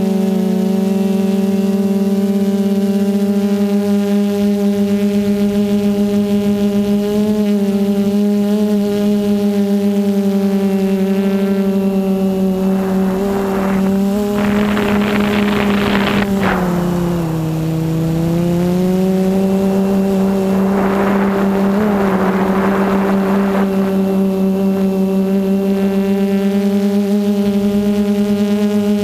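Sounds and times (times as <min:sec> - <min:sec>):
quadcopter motors whining: 0:00.0 - 0:29.0
rushing air noise: 0:10.7 - 0:25.3.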